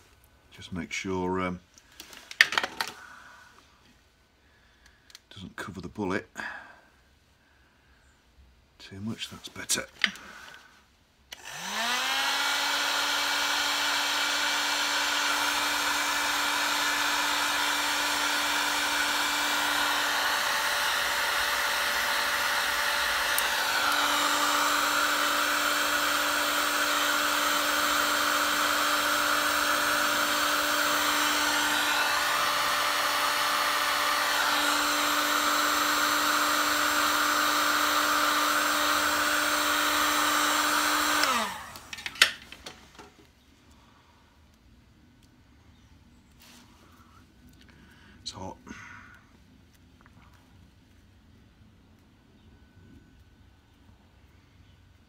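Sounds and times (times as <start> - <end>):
heat gun fan humming: 10.0 - 43.9
rush of hot air: 30.8 - 35.1.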